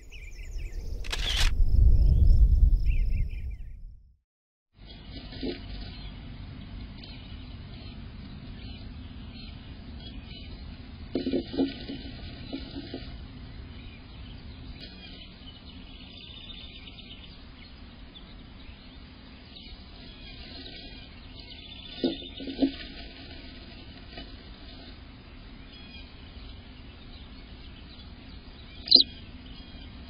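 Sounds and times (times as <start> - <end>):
faint high chirps: 28.8 - 29.2.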